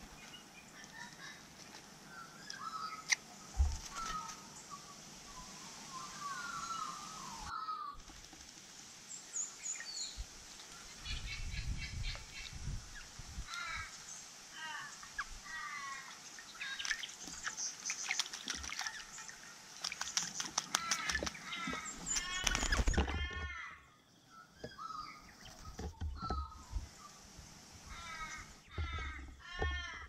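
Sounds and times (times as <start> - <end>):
birds chirping and calling: 0.0 - 8.0, 9.3 - 30.0
birds splashing in water: 2.5 - 4.6, 14.6 - 23.6, 27.7 - 30.0.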